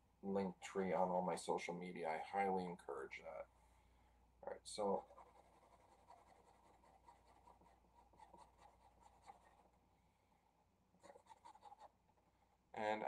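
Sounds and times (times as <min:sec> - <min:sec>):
marker scratching on paper: 0:05.0 - 0:09.6, 0:11.0 - 0:11.9.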